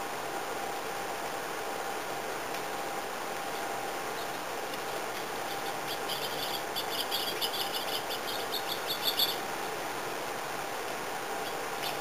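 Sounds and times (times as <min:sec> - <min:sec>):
steady background hiss: 0:00.0 - 0:12.0
songbird chirping: 0:05.5 - 0:09.8.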